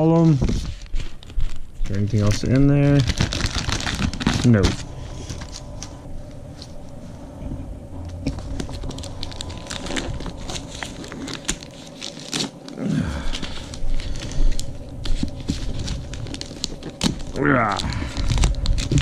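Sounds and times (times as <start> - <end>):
wrapping crinkling: 0.0 - 7.0, 8.0 - 19.0
paper package tearing: 2.0 - 5.9, 8.3 - 19.0.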